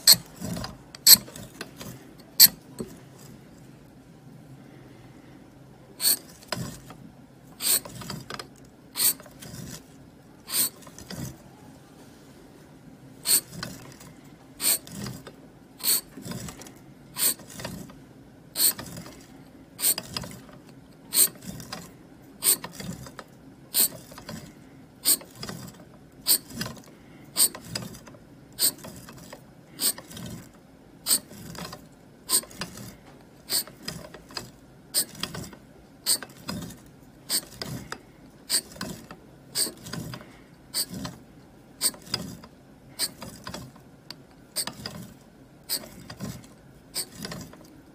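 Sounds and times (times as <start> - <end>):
blade scraping soap: 9.0 - 11.4, 13.3 - 14.0, 14.6 - 17.9, 31.1 - 41.2, 44.6 - 47.7.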